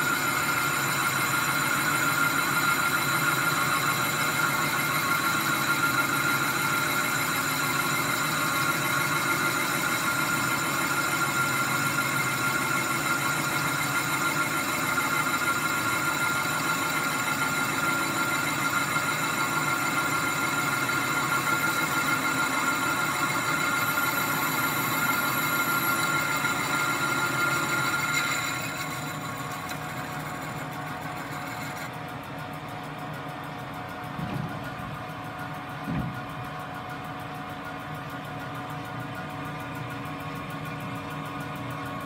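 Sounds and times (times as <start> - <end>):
lathe spindle running: 0.0 - 42.0
high-pitched cutting squeal: 13.1 - 31.9.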